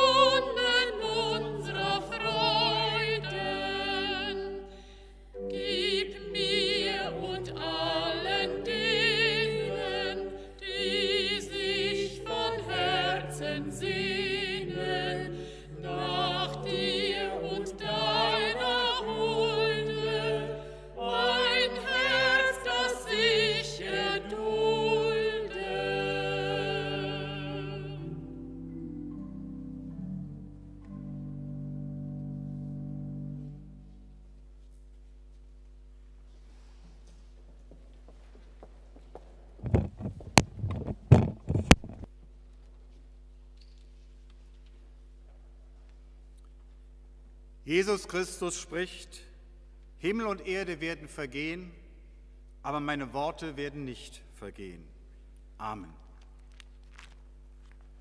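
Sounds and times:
women singing with vibrato: 0.0s - 4.8s, 5.4s - 28.3s
instrumental accompaniment: 0.0s - 34.4s.

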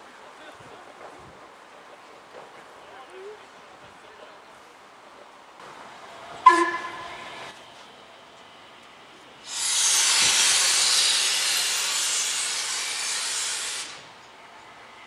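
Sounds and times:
steam locomotive whistle: 6.4s - 7.5s
steam hissing: 9.4s - 14.4s.

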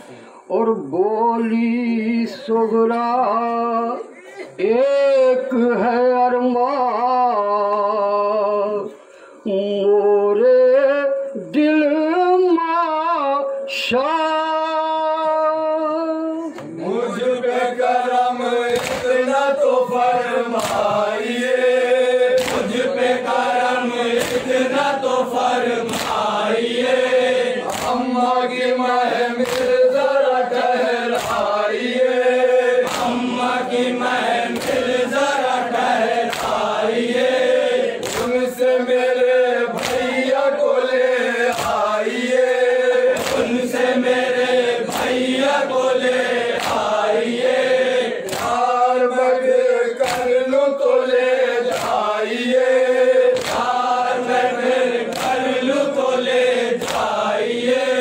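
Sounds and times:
men chanting a lament in unison: 0.0s - 58.0s
rhythmic chest-beating slaps: 16.5s - 58.0s.

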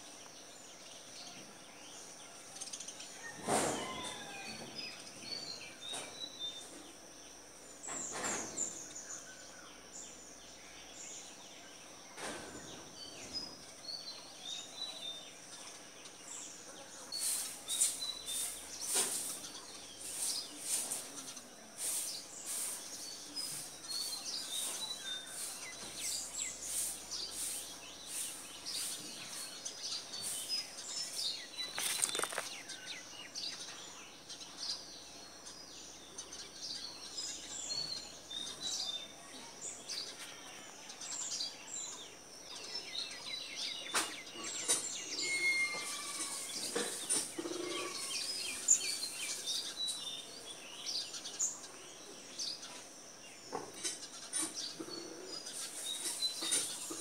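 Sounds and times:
small birds chirping: 0.0s - 57.0s
steady high hiss: 15.5s - 33.2s.

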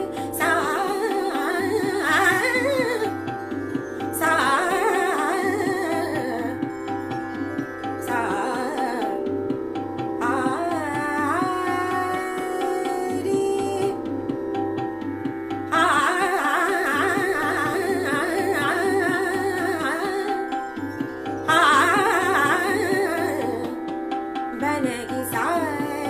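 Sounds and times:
woman singing: 0.0s - 14.3s, 15.7s - 26.0s
gliding melody over drone: 0.0s - 26.0s
tabla beat: 0.0s - 26.0s.

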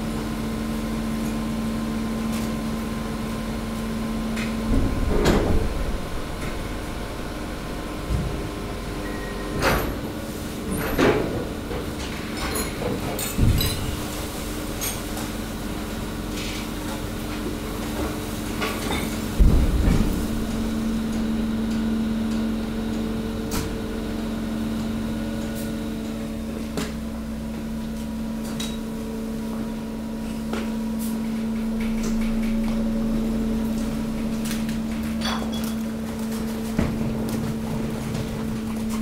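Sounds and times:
waste compactor hum: 0.0s - 39.0s
heavy thump: 4.7s - 7.4s, 19.4s - 21.6s.

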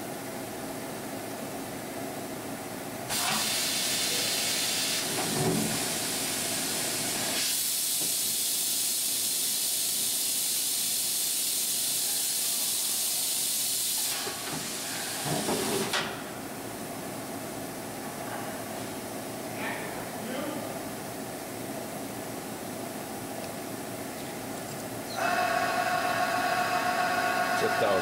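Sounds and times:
loud air hiss: 3.1s - 16.0s.

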